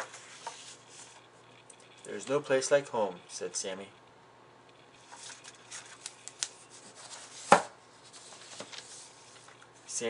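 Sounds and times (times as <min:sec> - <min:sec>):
pages rustling: 0:00.0 - 0:01.2, 0:05.0 - 0:09.6
book covers thudding shut: 0:07.4 - 0:07.7.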